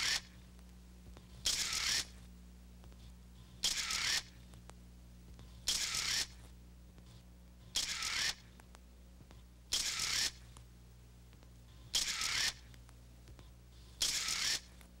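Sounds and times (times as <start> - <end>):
camera shutter whirring click: 0.0 - 0.4, 1.4 - 2.2, 3.6 - 4.4, 5.6 - 6.4, 7.7 - 8.5, 9.7 - 10.4, 11.8 - 12.8, 14.0 - 14.8
steady low hum: 0.0 - 15.0.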